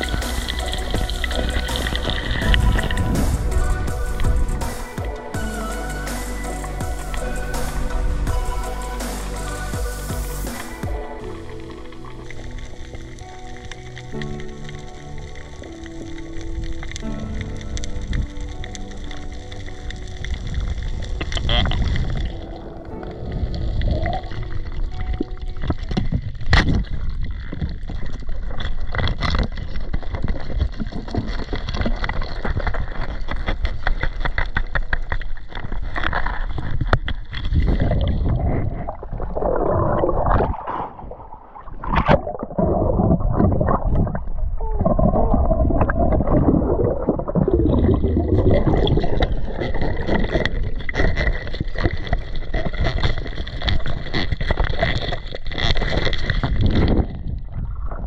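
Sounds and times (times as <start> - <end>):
high hiss: 0.0 - 11.5
water rushing and gurgling underwater: 0.0 - 58.0.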